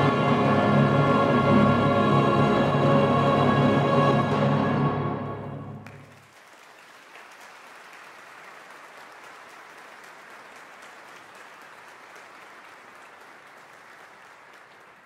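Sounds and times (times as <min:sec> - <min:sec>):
choral and orchestral chord: 0:00.0 - 0:06.1
audience applauding: 0:05.8 - 0:15.0.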